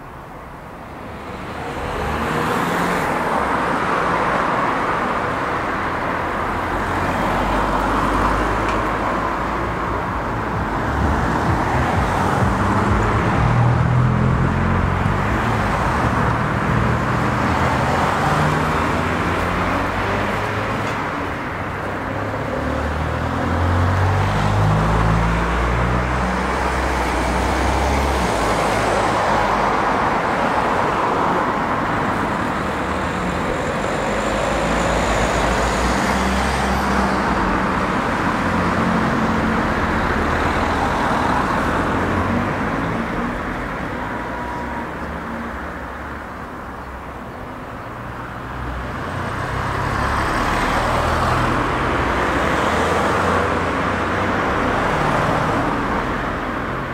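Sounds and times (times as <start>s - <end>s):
cars and van driving past: 0.9s - 56.9s.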